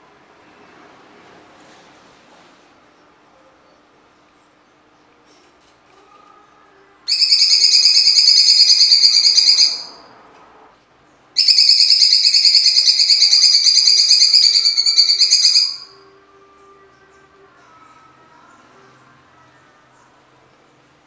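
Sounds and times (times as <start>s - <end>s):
bird singing harsh rapid song: 7.1s - 9.9s, 11.4s - 16.0s.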